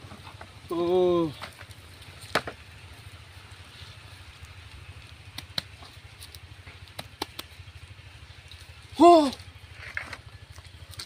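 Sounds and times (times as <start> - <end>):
sharp clicks and crackles: 1.3 - 2.8, 4.4 - 11.0
steady low rumble: 1.4 - 11.0
hands scraping dry mud: 5.1 - 7.7.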